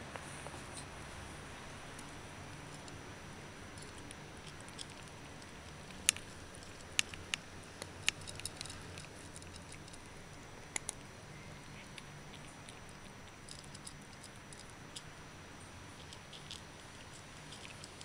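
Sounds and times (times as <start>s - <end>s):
faint chewing ticks: 1.8s - 3.0s, 3.6s - 18.0s
cat crunching dry kibble: 3.7s - 11.1s, 11.8s - 15.1s, 15.9s - 18.0s.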